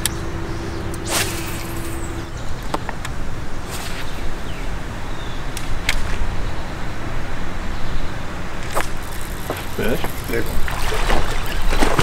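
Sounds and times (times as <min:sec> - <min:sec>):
steady low rumble: 0:00.0 - 0:07.1
fishing rod swishes: 0:01.0 - 0:02.0
fishing reel clicks: 0:08.7 - 0:10.7.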